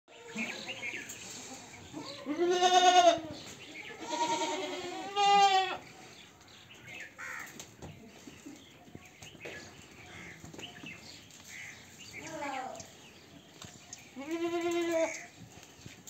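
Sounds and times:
goats bleating: 2.0 - 3.3, 3.9 - 5.8, 14.2 - 15.3
goat herd scuffling: 7.5 - 16.0.

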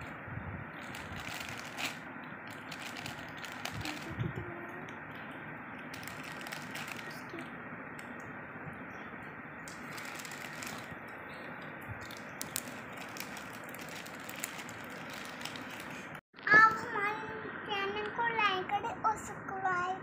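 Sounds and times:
plastic bag crinkling: 0.8 - 4.2, 5.9 - 7.3, 9.7 - 11.0, 12.0 - 16.2.

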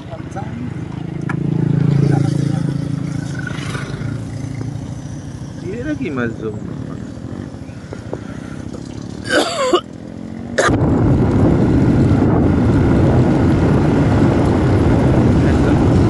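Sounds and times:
motorcycle engine running: 0.0 - 16.0
wind on microphone: 10.7 - 16.0.

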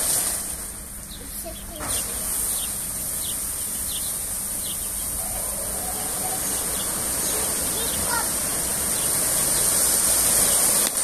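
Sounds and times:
car wash brushes spinning: 0.0 - 11.0
faint high chirp: 1.1 - 8.2.

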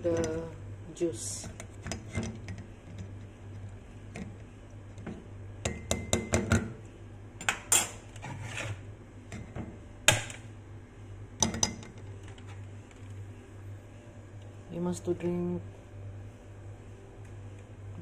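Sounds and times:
low steady hum: 0.0 - 18.0
spoon knocking on mug: 5.7 - 6.8
metal spoon scraping a strainer: 7.8 - 8.8.

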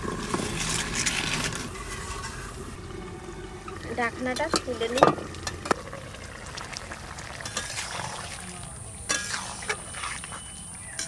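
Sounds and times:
metal spatula scraping pan: 0.0 - 2.7, 7.4 - 8.3, 9.0 - 11.0
curry simmering in wok: 0.0 - 11.0.

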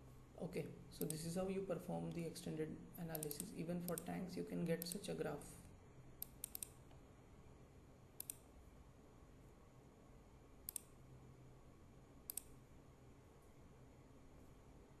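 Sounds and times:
faint low hum: 0.0 - 15.0
computer mouse clicks: 1.0 - 1.3, 3.0 - 5.2, 6.2 - 7.0, 8.2 - 8.5, 10.6 - 11.0, 12.2 - 12.6.

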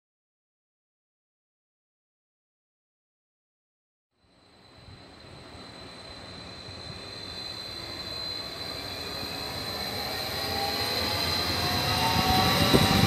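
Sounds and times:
electric train passing: 4.2 - 13.0.

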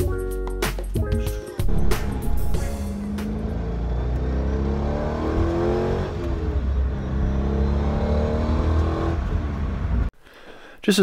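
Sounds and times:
low rumble: 1.6 - 4.8
car engine accelerating: 1.6 - 10.1.

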